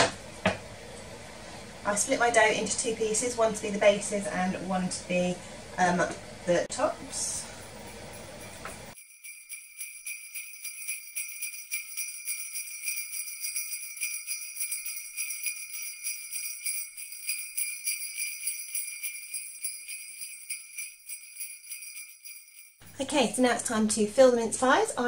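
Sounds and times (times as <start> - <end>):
christmas music: 7.0 - 23.4
sleigh bells jingling: 7.2 - 23.6.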